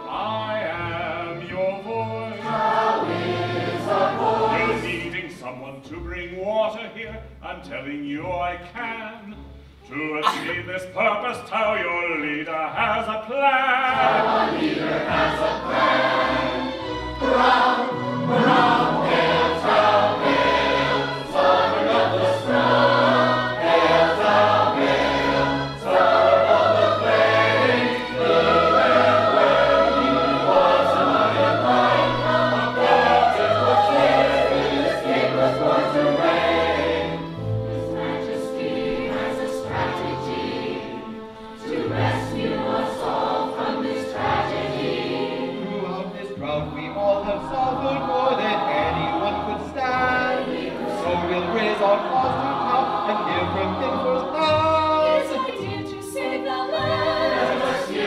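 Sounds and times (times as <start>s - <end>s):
opera chorus singing: 0.0s - 58.0s
instrumental accompaniment: 13.8s - 58.0s.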